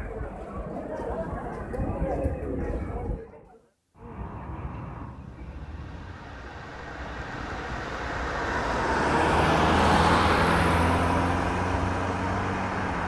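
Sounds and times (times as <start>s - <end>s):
car driving past: 4.0s - 13.0s.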